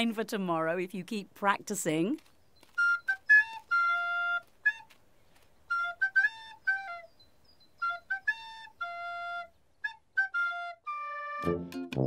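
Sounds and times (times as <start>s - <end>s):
recorder playing a simple tune: 2.7s - 5.0s, 5.7s - 7.2s, 7.8s - 12.0s.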